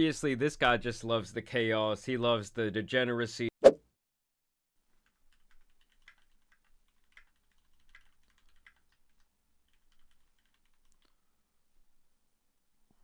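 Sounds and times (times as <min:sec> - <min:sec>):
faint typing on keyboard: 0:04.8 - 0:11.4.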